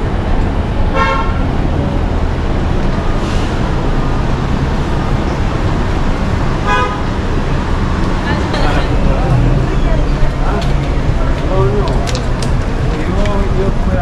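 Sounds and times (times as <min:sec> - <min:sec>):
passing vehicles rumbling: 0:00.0 - 0:14.0
car horn toots: 0:00.9 - 0:01.4, 0:06.6 - 0:07.1.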